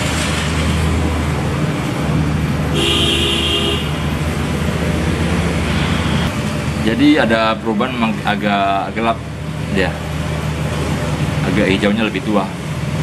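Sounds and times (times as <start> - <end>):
traffic rumble: 0.0 - 13.0
car horn toot: 2.7 - 4.0.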